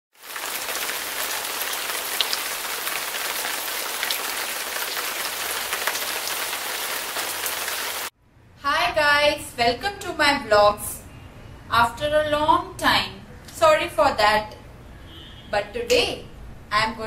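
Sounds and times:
rain-like hiss: 0:00.2 - 0:08.1.

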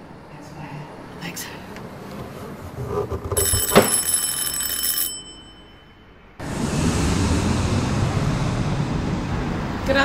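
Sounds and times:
outdoor ambience hiss and rumble: 0:00.0 - 0:03.4, 0:05.2 - 0:10.0
electric doorbell ringing: 0:03.4 - 0:06.4.

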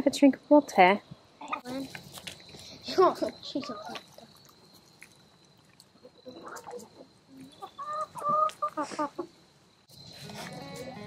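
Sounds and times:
hens calling: 0:01.4 - 0:05.0, 0:06.0 - 0:09.4.

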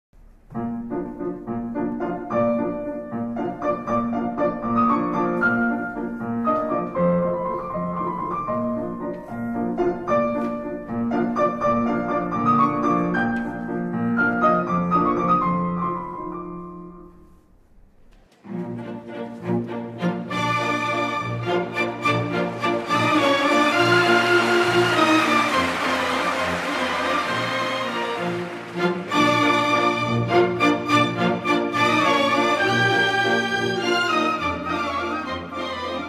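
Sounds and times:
slow piano piece: 0:00.2 - 0:36.0
other music: 0:18.4 - 0:35.8.

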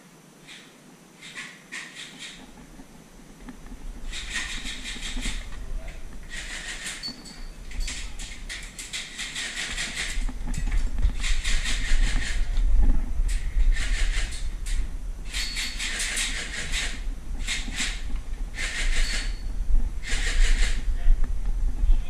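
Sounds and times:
low handling rumble: 0:10.1 - 0:15.4, 0:16.6 - 0:18.7, 0:19.3 - 0:22.0.

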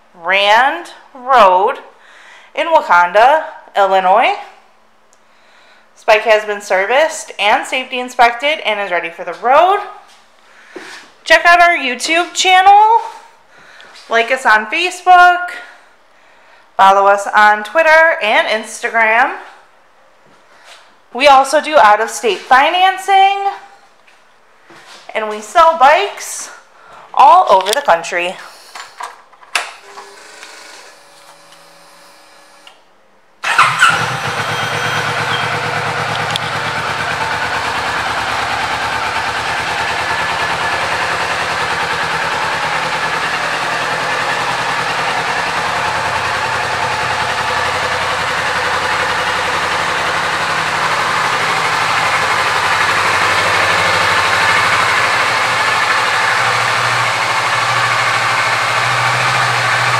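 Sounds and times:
motorcycle engine starting and idling: 0:33.4 - 0:59.9.

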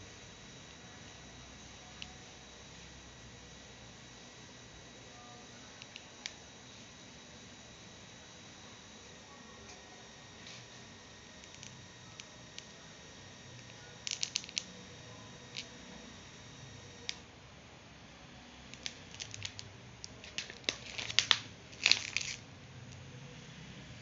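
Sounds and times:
plastic pouch crinkling: 0:14.1 - 0:14.7, 0:18.8 - 0:22.4.

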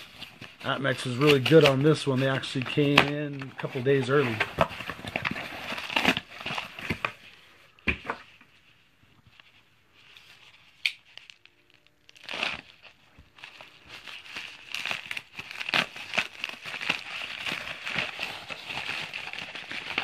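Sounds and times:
cardboard and mailer crinkling: 0:00.0 - 0:07.2, 0:11.2 - 0:20.0.

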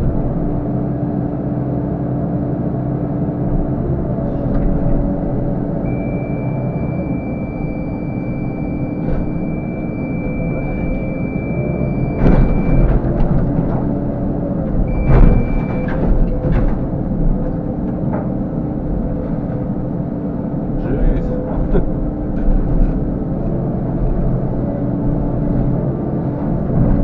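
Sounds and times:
excavator diesel engine: 0:00.0 - 0:27.0
high hydraulic whine: 0:04.2 - 0:16.7.

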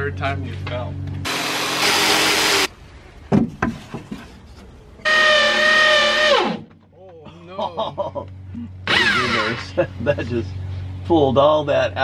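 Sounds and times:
motor whining: 0:01.2 - 0:02.7, 0:05.0 - 0:06.7, 0:08.8 - 0:09.8
power tool cutting wood: 0:01.3 - 0:02.7, 0:05.0 - 0:06.7, 0:08.9 - 0:09.7.

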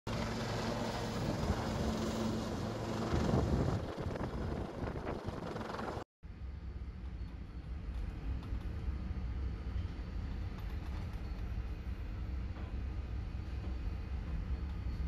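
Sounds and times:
steady low hum: 0:00.1 - 0:15.0
wind buffeting microphone: 0:02.9 - 0:06.0.

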